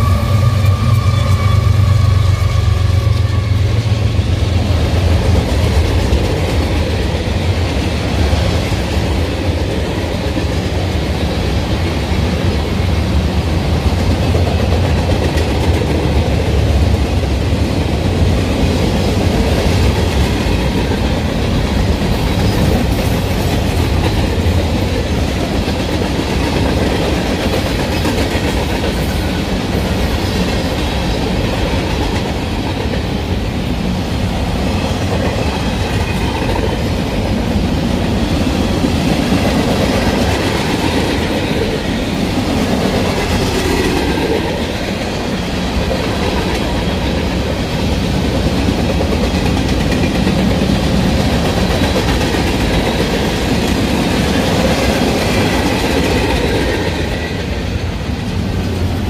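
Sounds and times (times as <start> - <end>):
faint high locomotive tone: 0.0 - 4.8
train wheels on rail rumbling: 0.0 - 59.0.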